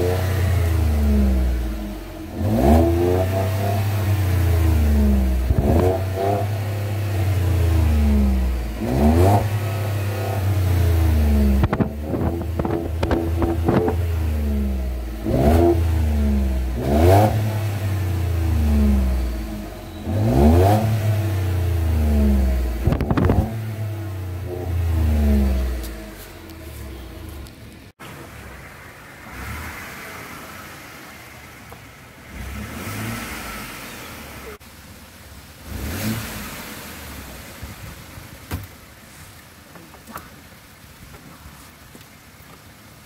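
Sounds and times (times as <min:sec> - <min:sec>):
truck engine revving: 0:00.0 - 0:34.6.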